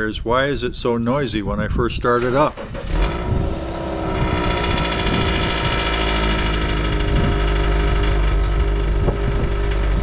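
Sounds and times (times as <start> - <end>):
car engine high idle: 2.5 - 10.0.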